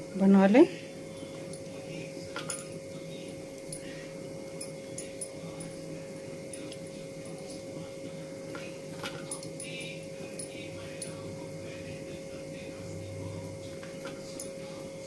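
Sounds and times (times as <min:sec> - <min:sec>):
high wavering whine: 0:00.0 - 0:15.0
steady electrical hum: 0:00.0 - 0:15.0.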